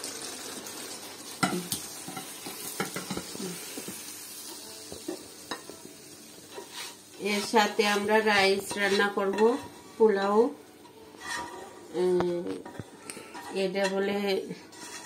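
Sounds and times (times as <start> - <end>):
gravy sizzling: 0.0 - 15.0
spatula scraping frying pan: 6.5 - 15.0.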